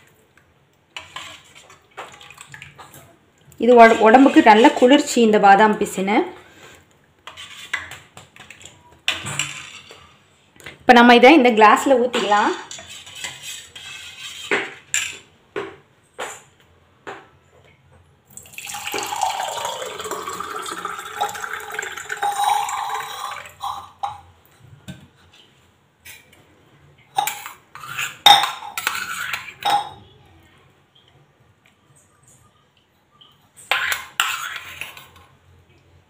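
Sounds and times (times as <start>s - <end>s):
thick juice pouring into glass: 18.4s - 23.6s.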